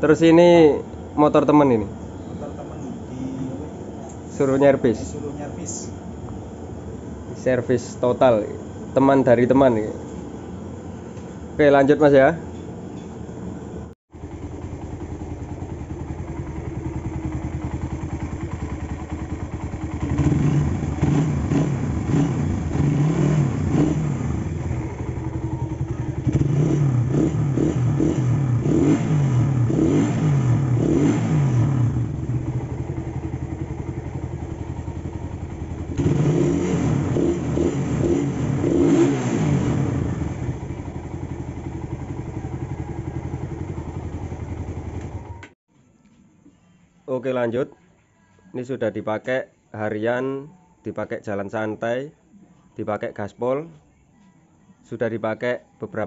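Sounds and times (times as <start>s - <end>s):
motorcycle engine idling and revving: 14.1s - 45.6s.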